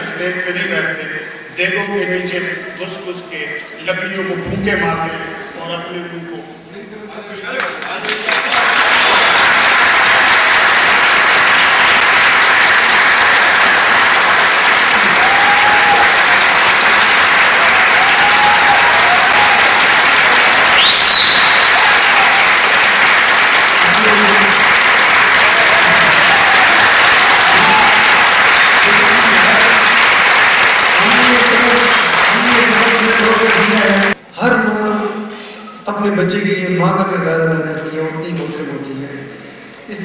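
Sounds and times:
audience applauding: 0:07.6 - 0:34.2
short rising whistle: 0:20.7 - 0:21.9.

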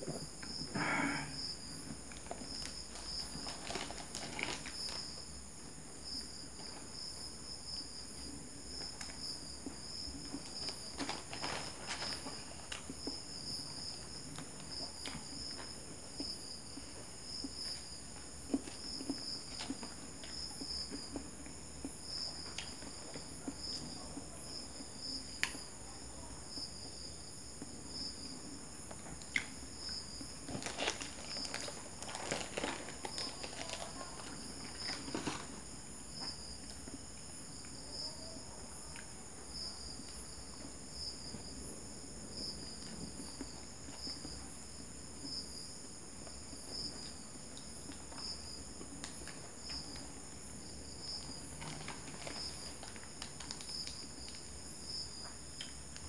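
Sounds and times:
crickets chirping: 0:00.0 - 0:56.0
paper wrapper crinkling: 0:02.4 - 0:05.1, 0:10.4 - 0:12.9, 0:30.4 - 0:35.6.

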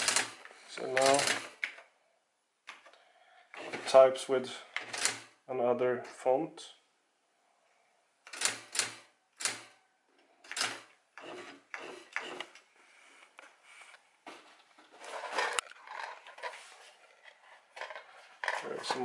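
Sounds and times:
typewriter clacks: 0:00.0 - 0:01.6, 0:08.3 - 0:09.7.

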